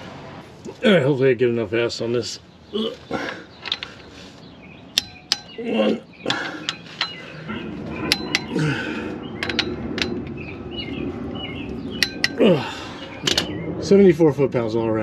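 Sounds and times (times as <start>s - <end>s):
socket clinking onto bolts: 9.4s - 10.3s.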